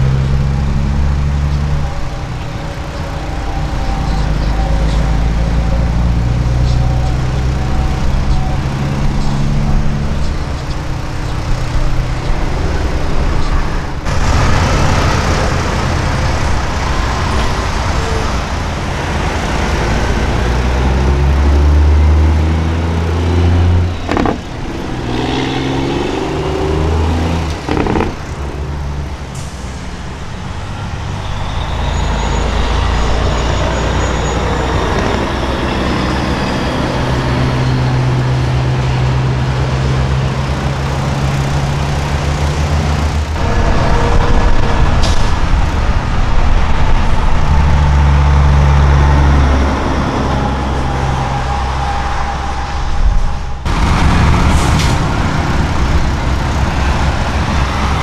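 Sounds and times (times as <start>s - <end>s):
diesel truck engines rumbling: 0.0s - 58.0s.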